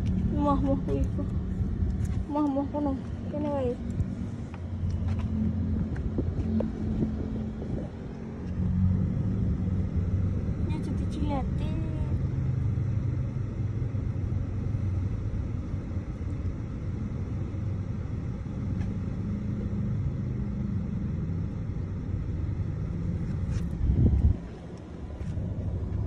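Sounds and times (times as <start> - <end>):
car engine and road noise: 0.0 - 26.0.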